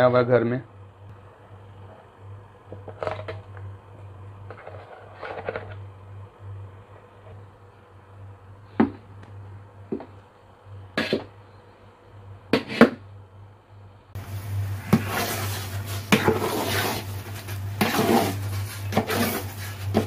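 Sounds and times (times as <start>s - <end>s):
spoon scraping thick paste in pot: 11.0s - 11.3s, 14.5s - 20.0s.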